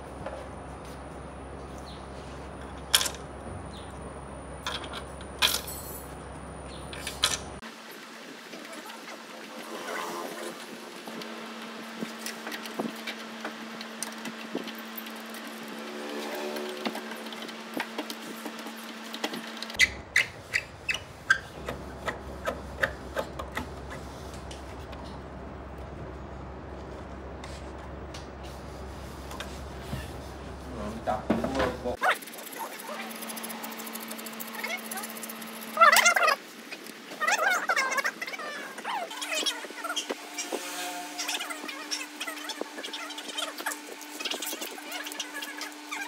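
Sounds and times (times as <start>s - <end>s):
steady low hum: 9.4s - 46.0s.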